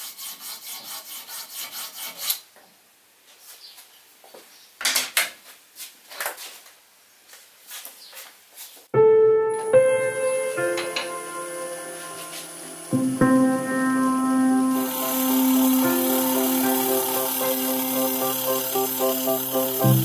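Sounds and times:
file stroking metal tip: 0:00.0 - 0:02.4
piano music: 0:09.0 - 0:20.0
tool scraping spinning wood: 0:12.0 - 0:20.0.

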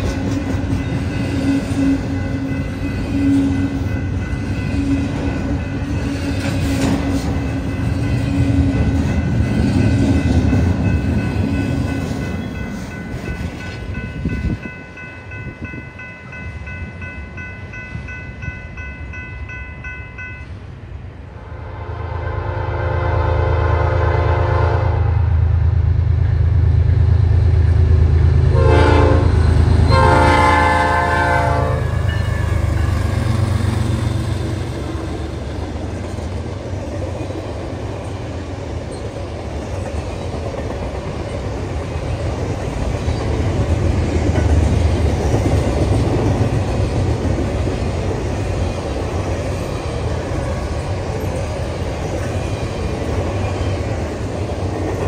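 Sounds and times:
locomotive air horn: 0:21.5 - 0:25.3, 0:28.5 - 0:32.6.

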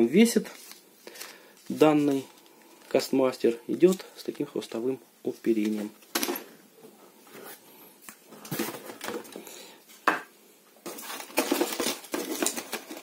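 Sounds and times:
plastic packs clicking and rustling: 0:08.4 - 0:09.6, 0:10.8 - 0:13.0.

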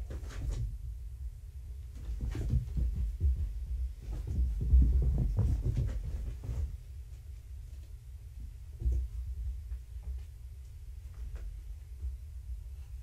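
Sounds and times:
kittens scampering on carpet: 0:01.9 - 0:07.9.

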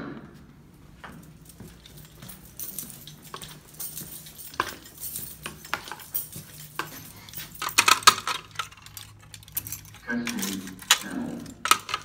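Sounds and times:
footsteps: 0:00.2 - 0:09.0
keys jingling: 0:00.9 - 0:12.0
metal cover clinking open: 0:06.8 - 0:12.0.

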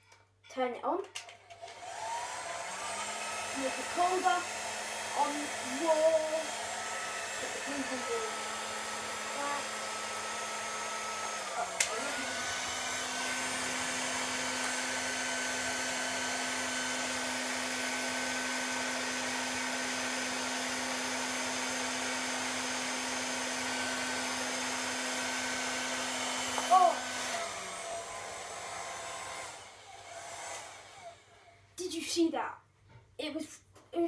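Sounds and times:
hairdryer running: 0:01.1 - 0:31.7
hairdryer switch click: 0:11.7 - 0:12.5, 0:14.6 - 0:14.8.

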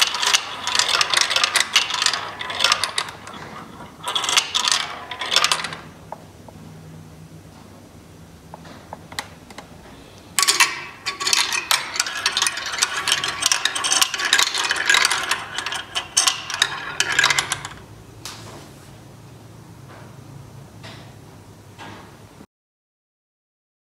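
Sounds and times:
balls clattering down ramps: 0:00.0 - 0:05.9, 0:10.4 - 0:17.8.

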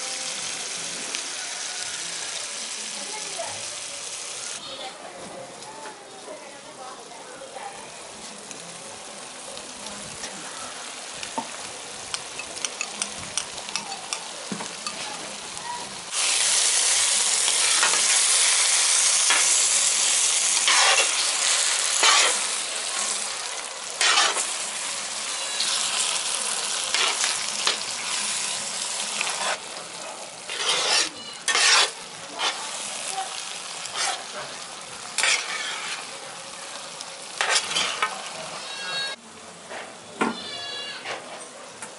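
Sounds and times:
curry sizzling: 0:00.0 - 0:39.6
metal spatula scraping: 0:17.5 - 0:23.4, 0:24.0 - 0:34.6, 0:35.2 - 0:36.1, 0:37.4 - 0:39.2.

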